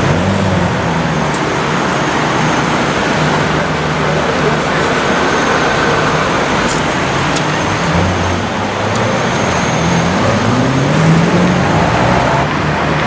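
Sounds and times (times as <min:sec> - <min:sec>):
surrounding traffic noise: 0:00.0 - 0:13.0
car engine at low revs: 0:09.9 - 0:13.0.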